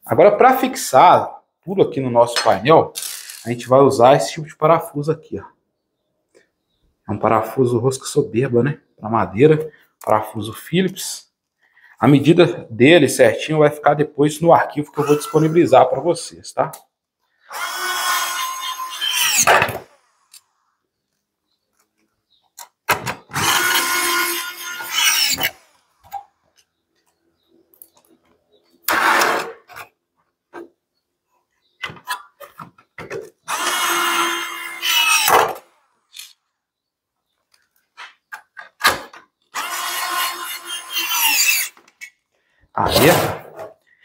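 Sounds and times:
electric screwdriver whining: 15.0s - 15.6s, 17.5s - 20.0s, 23.3s - 25.7s, 33.5s - 35.6s, 39.5s - 41.8s.

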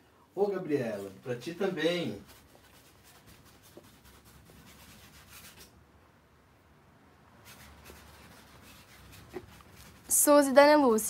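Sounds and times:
paintbrush scratching on canvas: 0.8s - 5.7s, 7.4s - 10.4s.

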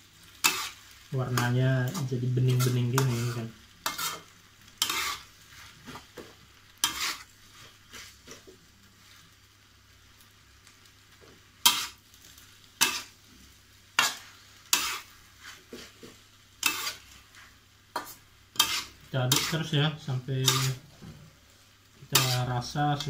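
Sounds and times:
faint frying sizzle: 0.0s - 23.0s
metal spatula scraping a wok: 0.3s - 6.2s, 6.8s - 8.4s, 11.6s - 12.0s, 12.8s - 13.2s, 14.0s - 19.7s, 20.4s - 21.2s, 22.1s - 23.0s.

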